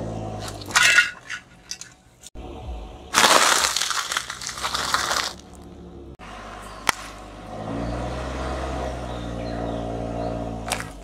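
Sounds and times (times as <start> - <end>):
car engine humming: 0.0 - 3.2, 4.0 - 11.0
tyre crushing plastic package: 3.2 - 5.5.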